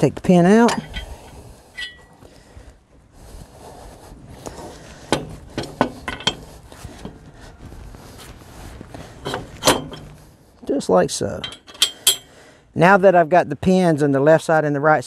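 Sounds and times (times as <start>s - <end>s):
steel clinks and knocks: 0.6s - 2.1s, 5.1s - 7.2s, 11.4s - 12.3s.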